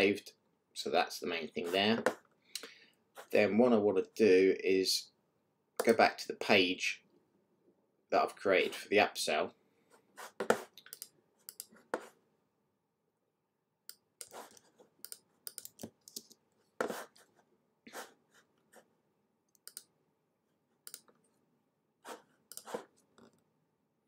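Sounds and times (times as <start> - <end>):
computer mouse clicks: 10.8 - 11.7, 13.9 - 16.4, 19.5 - 19.9, 20.8 - 21.3, 22.5 - 23.4.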